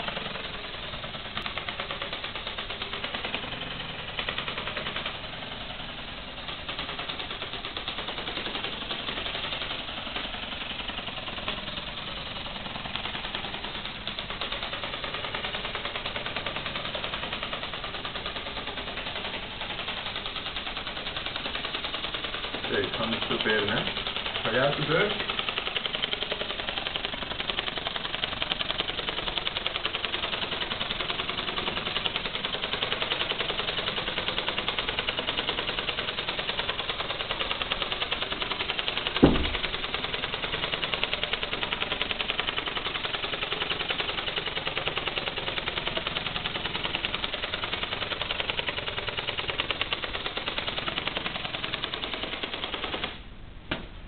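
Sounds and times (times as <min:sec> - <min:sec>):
flapping wing clattering buzz: 0:00.0 - 0:53.3
thump: 0:39.2 - 0:39.7, 0:53.7 - 0:54.0.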